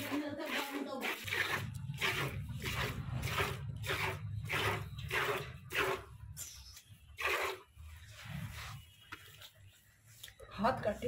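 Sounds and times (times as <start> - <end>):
milk squirting into plastic bucket: 0.0 - 6.2, 7.2 - 7.8.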